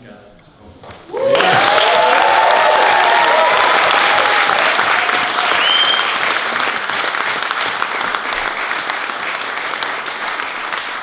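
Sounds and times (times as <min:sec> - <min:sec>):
crowd applauding: 0:01.0 - 0:11.0
high whistle-like tone: 0:05.6 - 0:06.2.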